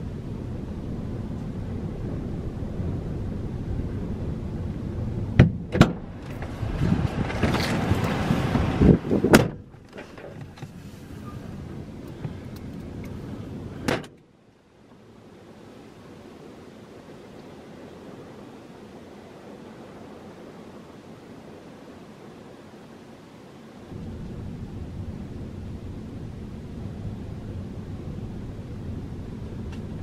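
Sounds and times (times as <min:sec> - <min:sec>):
wind buffeting a car: 0:00.0 - 0:14.2, 0:23.9 - 0:30.0.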